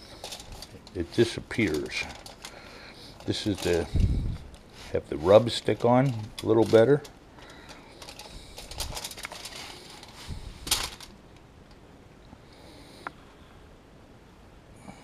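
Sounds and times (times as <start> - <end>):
aluminium foil crinkling: 0.0 - 11.4.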